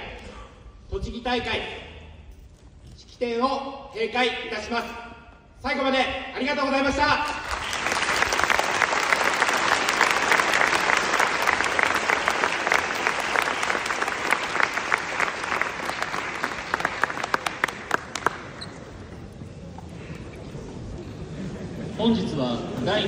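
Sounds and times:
audience applauding: 0:07.3 - 0:19.0.

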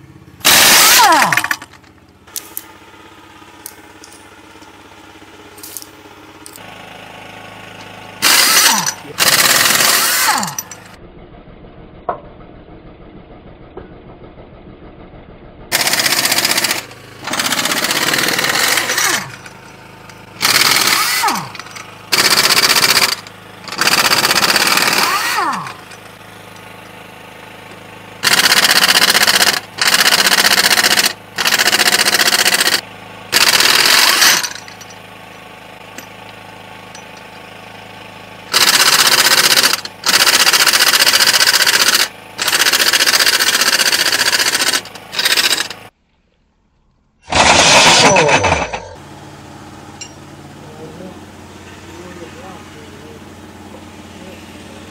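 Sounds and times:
pneumatic impact wrench hammering: 0:00.4 - 0:02.7, 0:07.8 - 0:11.0, 0:15.7 - 0:27.0, 0:27.6 - 0:37.5, 0:38.5 - 0:45.9, 0:47.2 - 0:49.0.

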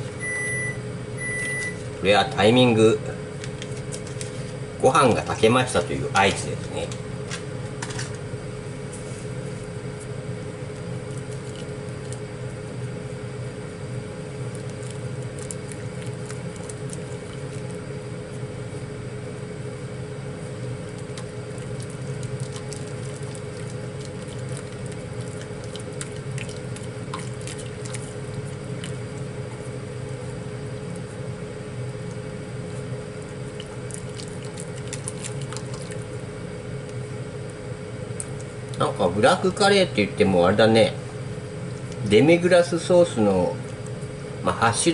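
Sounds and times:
range hood fan humming: 0:00.0 - 0:44.9
stirring thick sauce squelch: 0:10.6 - 0:13.1, 0:14.2 - 0:18.7, 0:20.1 - 0:37.6.

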